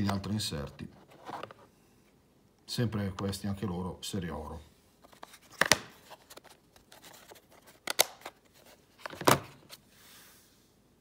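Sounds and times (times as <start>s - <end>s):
plastic case clicks: 7.8s - 8.4s.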